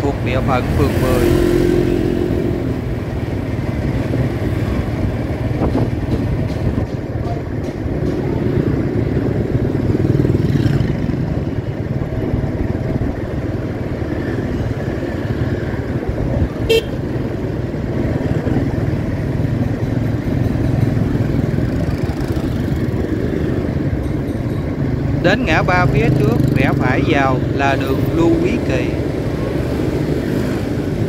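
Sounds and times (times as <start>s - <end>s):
motorbikes and cars passing: 0.0s - 31.0s
horn toot: 16.7s - 17.0s.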